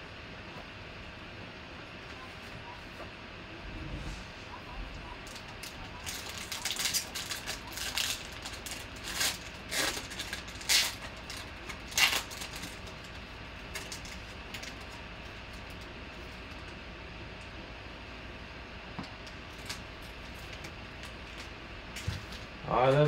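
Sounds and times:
low hum: 0:00.0 - 0:22.8
foil wrapper crinkling and tearing: 0:05.3 - 0:16.6.

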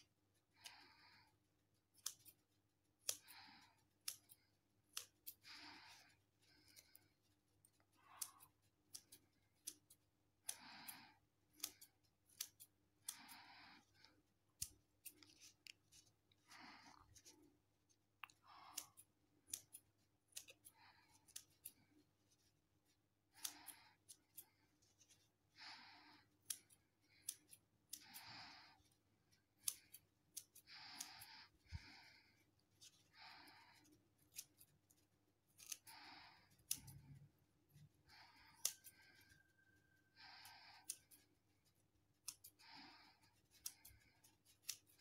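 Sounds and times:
scissors snipping foam sponge: 0:00.0 - 0:16.2, 0:18.3 - 0:25.5, 0:26.1 - 0:45.0
scissor blades clicking: 0:01.9 - 0:02.4, 0:03.0 - 0:06.0, 0:08.2 - 0:13.4, 0:18.7 - 0:21.8, 0:23.4 - 0:24.5, 0:26.4 - 0:28.2, 0:29.6 - 0:31.3, 0:35.5 - 0:35.9, 0:36.5 - 0:37.1, 0:38.5 - 0:39.3, 0:42.2 - 0:42.6, 0:43.5 - 0:45.0.

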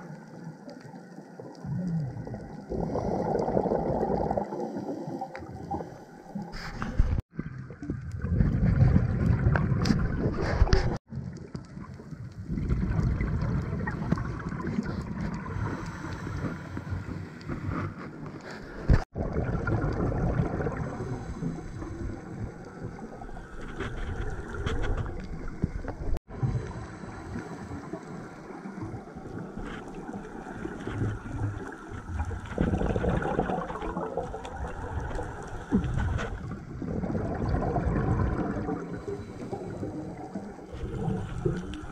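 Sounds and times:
underwater rushing and bubbling: 0:00.0 - 0:41.9
diver breathing through regulator: 0:13.9 - 0:19.0, 0:20.7 - 0:22.5, 0:38.6 - 0:41.9.

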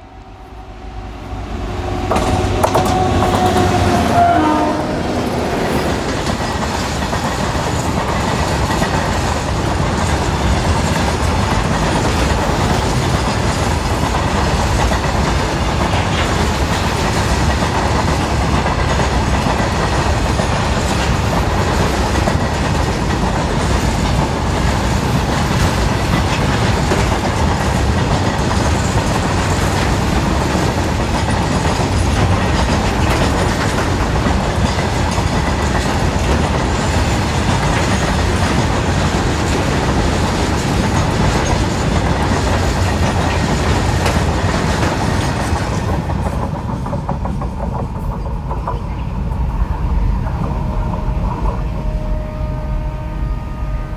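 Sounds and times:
train horn: 0:00.0 - 0:05.9, 0:50.4 - 0:53.9
train wheels clattering over rail joints: 0:02.0 - 0:49.1.

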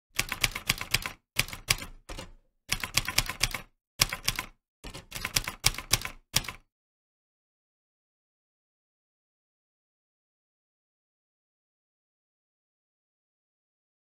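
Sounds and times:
typewriter key clicks: 0:00.2 - 0:06.6.

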